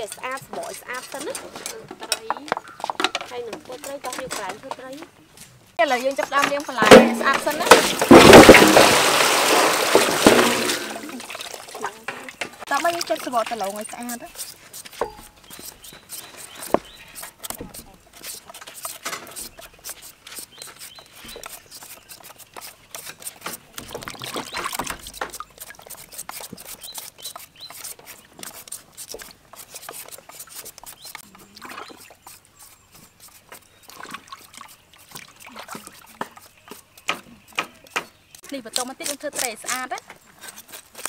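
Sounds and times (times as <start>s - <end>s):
peelers scraping potatoes: 0.0s - 8.9s, 12.1s - 41.0s
water dripping and splashing: 6.3s - 15.6s, 21.2s - 38.5s.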